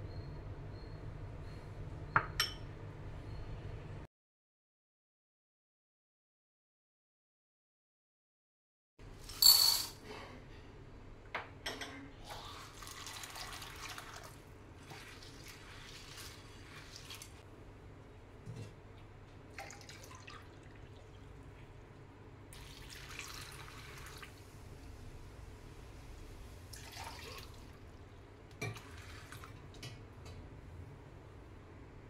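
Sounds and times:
water pouring over peas: 12.5 - 17.4, 22.6 - 24.4.

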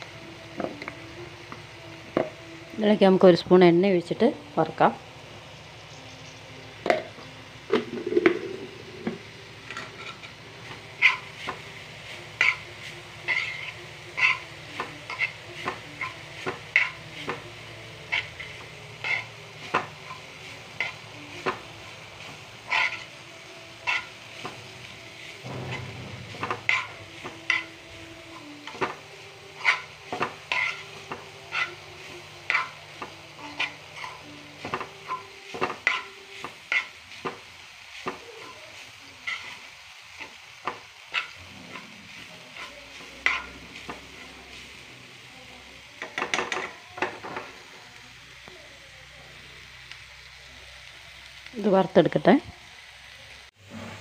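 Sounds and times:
light sizzle: 0.0 - 54.0
spoon scraping a pan: 7.7 - 21.6, 22.2 - 44.8.

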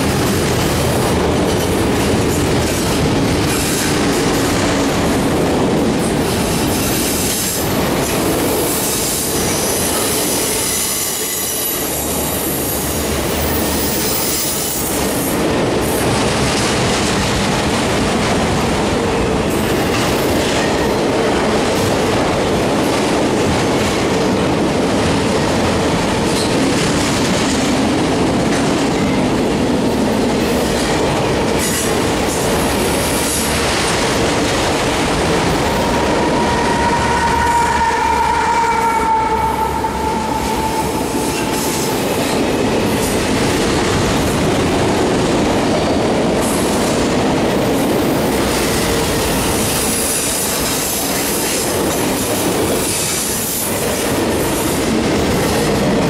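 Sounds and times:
train wheels rumbling on rail: 0.0 - 56.0
diesel locomotive engine rumble: 27.9 - 48.5.

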